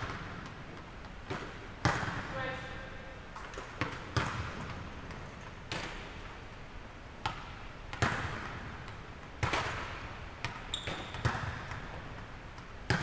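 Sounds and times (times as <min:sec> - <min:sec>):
volleyballs slapping in a gym: 0:00.0 - 0:13.0.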